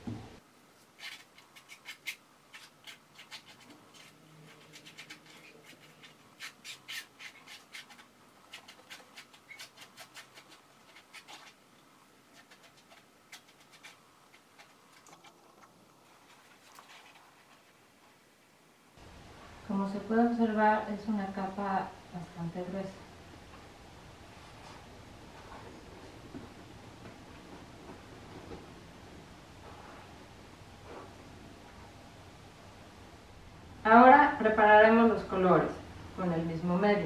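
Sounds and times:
stick scraping canvas: 0.9 - 11.6.

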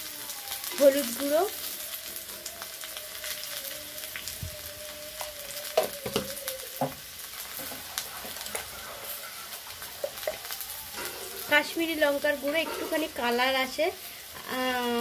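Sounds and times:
potato wedges sizzling in oil: 0.0 - 15.0.

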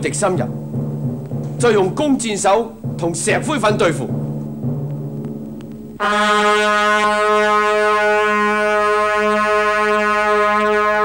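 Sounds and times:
brass long note: 4.2 - 11.0.

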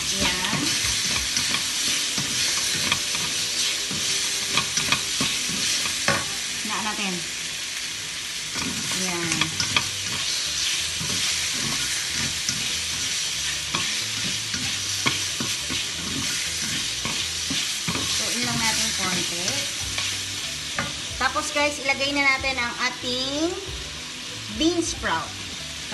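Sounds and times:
wooden spatula scraping a wok: 0.0 - 6.3, 8.6 - 21.2
meat sizzling in hot oil: 0.0 - 25.9.

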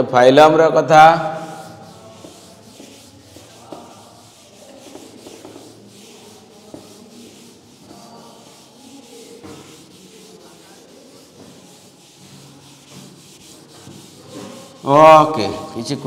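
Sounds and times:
duster wiping chalkboard: 1.1 - 16.0.

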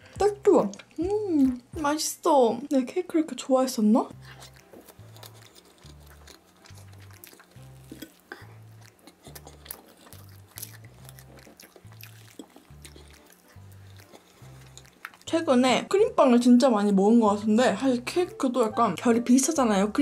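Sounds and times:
soft background music: 0.0 - 20.0
chewing soft cake: 4.1 - 16.5.

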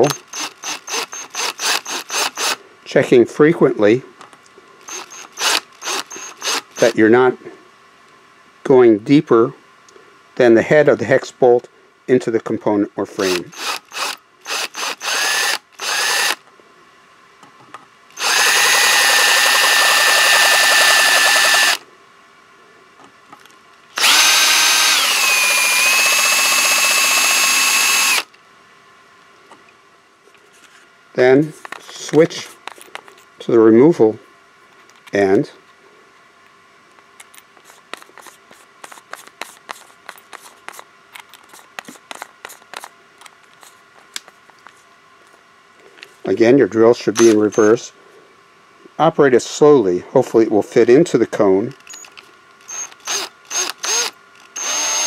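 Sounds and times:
cordless drill whining: 0.0 - 2.6, 4.9 - 7.0, 13.2 - 16.4, 18.2 - 21.8, 24.0 - 28.3, 47.2 - 47.8, 51.9 - 55.0.

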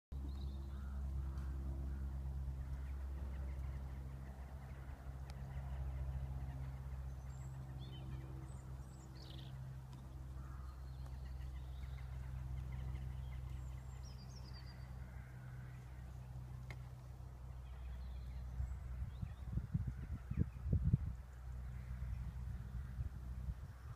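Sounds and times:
steady low hum: 0.1 - 23.9.

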